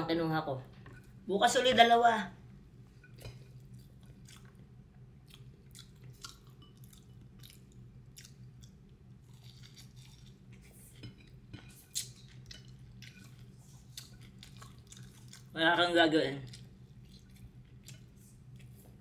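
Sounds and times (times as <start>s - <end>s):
faint low hum: 0.0s - 19.0s
person chewing with wet smacks: 3.1s - 15.6s, 16.4s - 19.0s.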